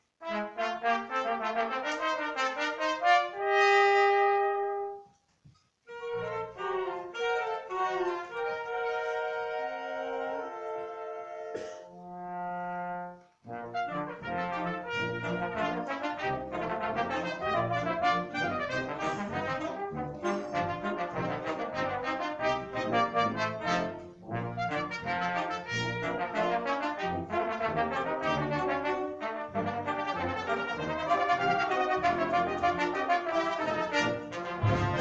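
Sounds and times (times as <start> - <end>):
wind band playing: 0.0 - 5.1, 5.9 - 35.0
trumpet and trombone solos: 0.0 - 5.2, 5.9 - 35.0.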